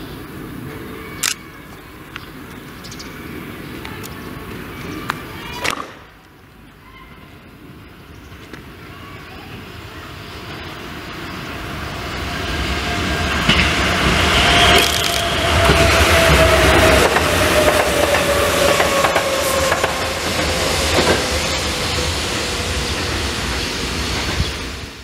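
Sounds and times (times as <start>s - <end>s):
electric train whine: 7.5s - 25.0s
train wheels clicking over rail joints: 13.4s - 24.5s.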